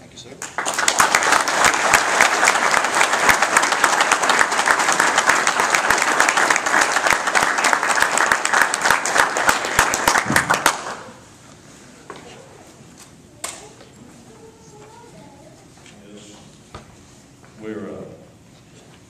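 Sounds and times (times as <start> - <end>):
audience applauding: 0.4 - 11.2.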